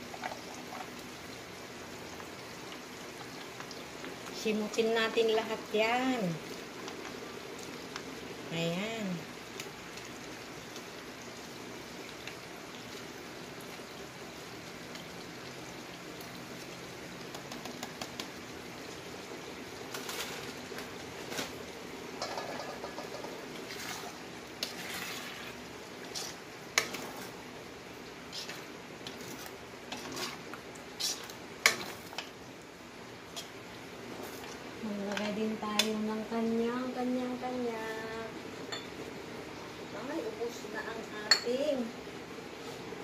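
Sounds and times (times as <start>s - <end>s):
meat sizzling in a frying pan: 0.0s - 43.0s
spatula stirring sauce: 22.2s - 27.4s, 28.0s - 32.4s.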